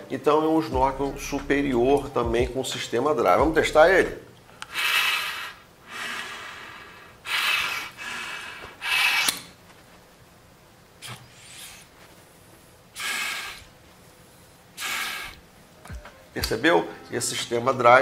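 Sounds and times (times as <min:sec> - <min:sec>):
breaths through snorkel tube: 0:13.0 - 0:13.7, 0:14.8 - 0:15.4.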